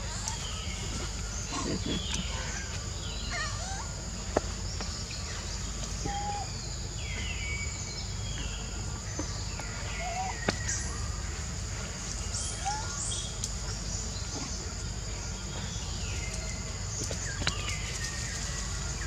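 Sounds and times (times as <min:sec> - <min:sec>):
high insect drone: 0:00.0 - 0:19.0.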